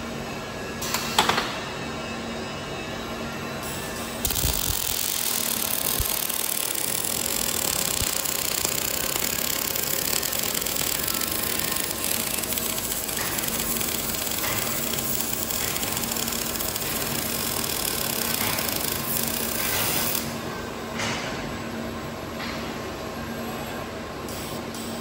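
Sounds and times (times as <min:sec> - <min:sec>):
welding arc crackling: 0:04.2 - 0:20.2.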